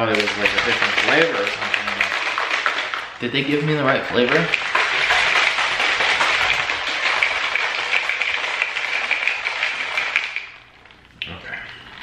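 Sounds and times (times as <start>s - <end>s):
liquid sloshing in shaker cup: 0.0s - 11.1s.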